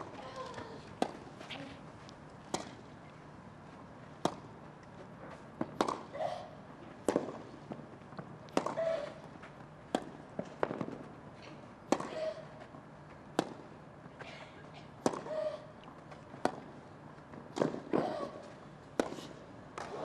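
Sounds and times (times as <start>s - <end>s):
racket hitting tennis ball: 4.2s - 4.5s, 5.6s - 6.1s, 8.5s - 9.0s, 17.5s - 18.2s.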